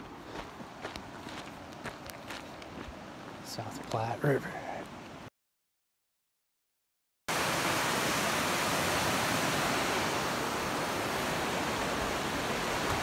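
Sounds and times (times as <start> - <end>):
river rushing: 7.3 - 13.0.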